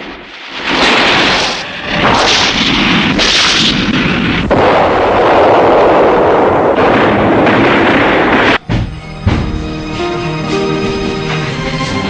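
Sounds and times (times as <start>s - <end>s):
artillery fire and explosions: 0.0s - 9.8s.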